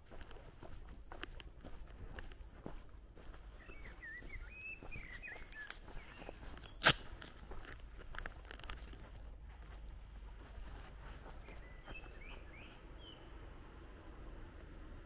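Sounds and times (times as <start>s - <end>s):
footsteps on pavement: 0.0s - 13.0s
songbird warbling: 3.6s - 6.8s
sharp crack: 6.6s - 8.8s.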